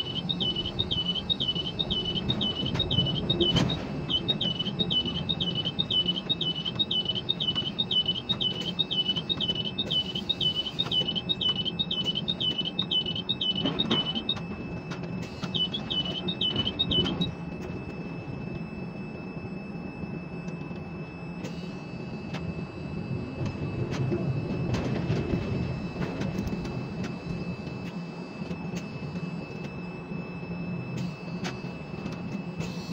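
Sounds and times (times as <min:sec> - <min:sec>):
electronic warning beeper chirping: 0:00.0 - 0:20.3
low hum of crane machinery: 0:00.0 - 0:32.9.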